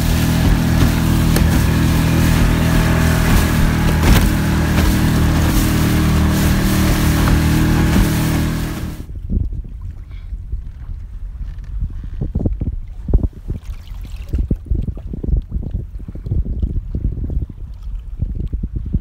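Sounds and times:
boat engine humming: 0:00.0 - 0:09.1
rumble of wind and water: 0:00.0 - 0:19.0.

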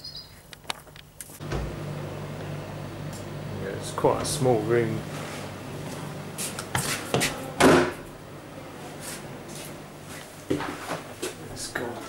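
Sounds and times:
door coming open: 0:01.4 - 0:02.6, 0:04.0 - 0:08.2.

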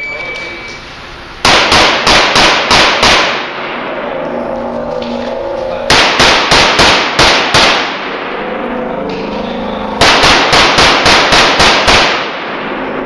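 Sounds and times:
pistol shots ringing indoors: 0:01.4 - 0:03.7, 0:05.9 - 0:08.3, 0:10.0 - 0:13.0.

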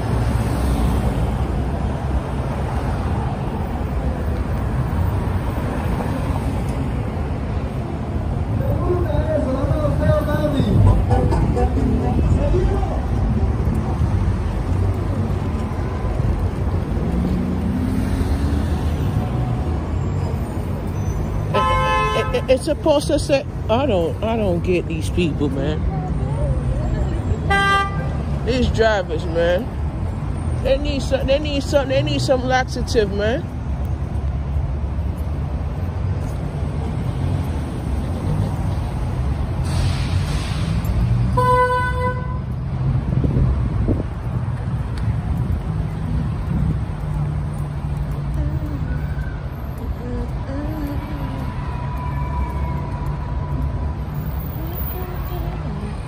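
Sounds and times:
low rumble of heavy vehicles: 0:00.0 - 0:56.0
car horn honking: 0:21.5 - 0:22.7, 0:27.5 - 0:28.2, 0:41.3 - 0:42.4.

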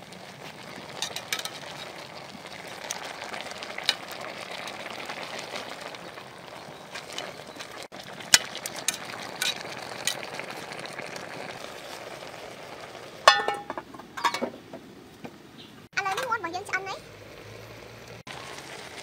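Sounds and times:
chicken sizzling in a pot: 0:00.0 - 0:14.7, 0:16.0 - 0:19.0
metal tongs clinking on pot: 0:01.0 - 0:01.9, 0:13.2 - 0:14.5
ringing metal clank: 0:13.3 - 0:14.5.

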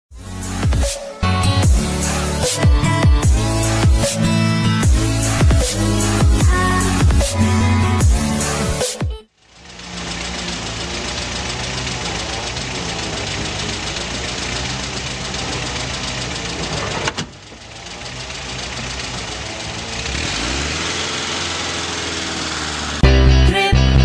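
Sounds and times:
small motorcycle engine running: 0:09.3 - 0:23.1.

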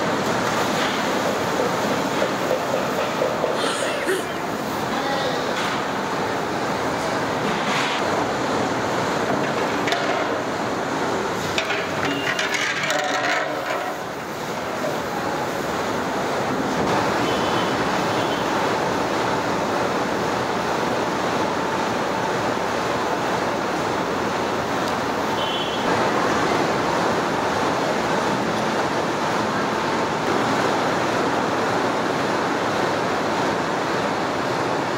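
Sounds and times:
water boiling in a pot: 0:00.0 - 0:34.9
knocks and clatters: 0:11.6 - 0:14.0.

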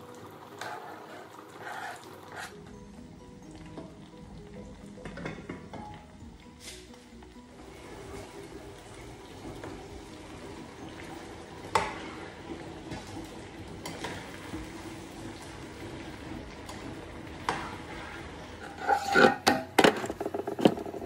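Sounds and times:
stew frying in a pan: 0:00.0 - 0:21.0.

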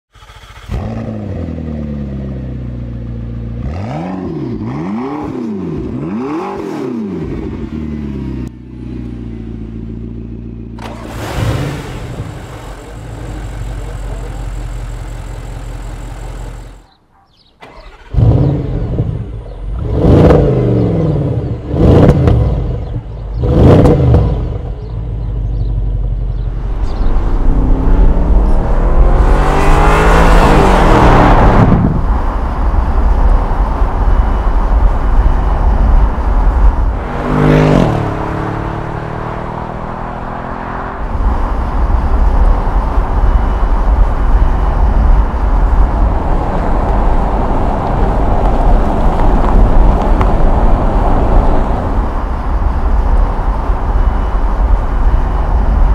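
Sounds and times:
car engine idling and revving: 0:00.1 - 0:55.9
car accelerating away: 0:17.6 - 0:22.8, 0:26.3 - 0:32.0, 0:36.6 - 0:41.2.

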